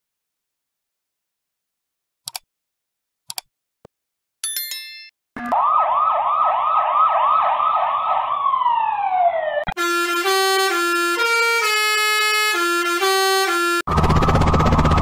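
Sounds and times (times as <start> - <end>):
police siren yelping: 5.4 - 15.0
musical bus horn: 9.7 - 13.9.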